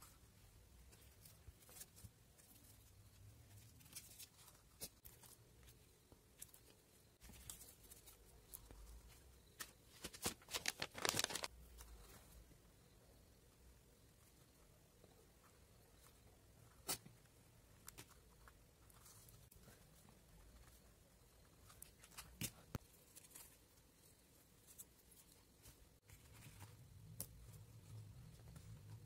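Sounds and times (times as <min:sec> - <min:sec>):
faint paper rustles and taps: 0:07.2 - 0:11.5.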